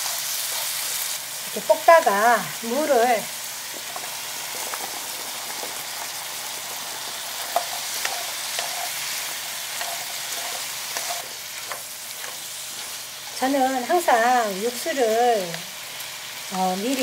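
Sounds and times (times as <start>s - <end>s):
meat sizzling in frying pan: 0.0s - 17.0s.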